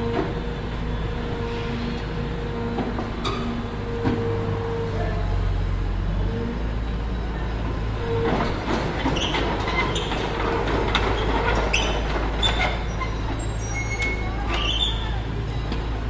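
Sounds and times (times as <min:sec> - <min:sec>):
knocks and scraping clanks: 0:08.0 - 0:14.8.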